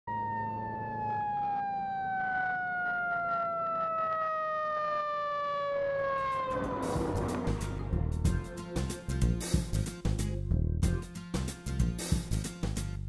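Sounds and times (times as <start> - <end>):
fire truck siren wailing: 0.1 - 9.0
faint engine rumble: 6.2 - 9.9.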